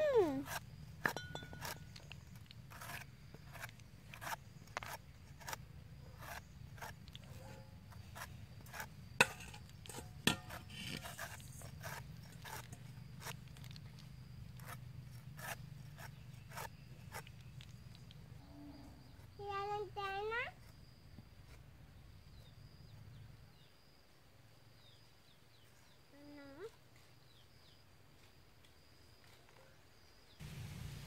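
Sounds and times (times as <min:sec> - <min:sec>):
cleaver scraping pineapple skin: 0:00.1 - 0:18.2.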